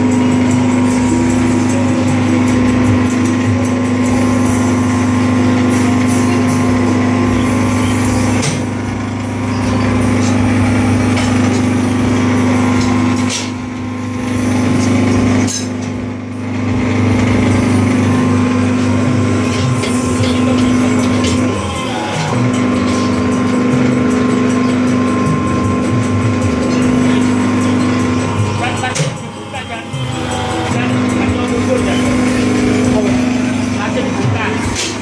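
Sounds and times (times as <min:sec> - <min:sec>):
hydraulic power pack humming: 0:00.0 - 0:35.0.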